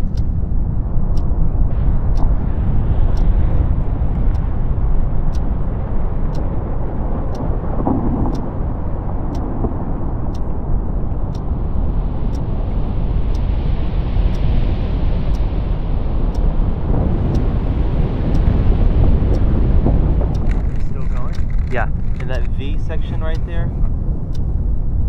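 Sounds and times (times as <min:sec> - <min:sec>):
glacier ice collapsing rumble: 0:01.6 - 0:12.2, 0:16.0 - 0:25.0.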